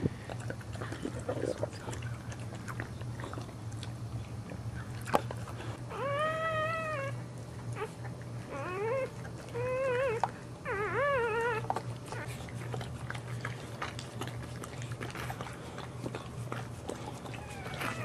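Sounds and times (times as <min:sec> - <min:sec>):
steady low hum: 0:00.0 - 0:18.0
dog whining cries: 0:05.8 - 0:07.2, 0:07.8 - 0:12.3, 0:17.3 - 0:18.0.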